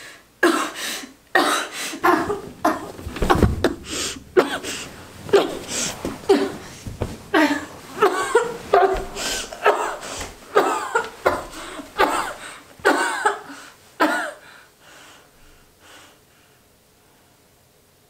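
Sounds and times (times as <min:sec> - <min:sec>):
woman coughing and choking: 0:01.4 - 0:06.7, 0:07.3 - 0:14.4.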